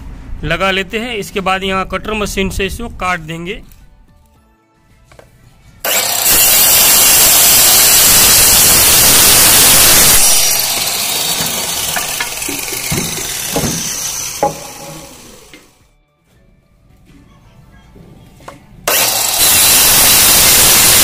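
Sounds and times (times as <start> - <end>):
electric cutter sawing wood: 5.8 - 15.8, 18.9 - 21.0.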